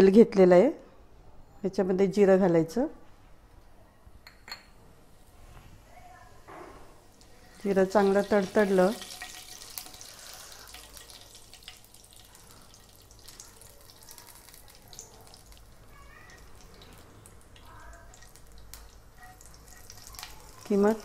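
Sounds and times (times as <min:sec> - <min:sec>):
seeds sizzling in hot oil: 0:07.1 - 0:21.0
small pops and crackles: 0:16.3 - 0:20.8.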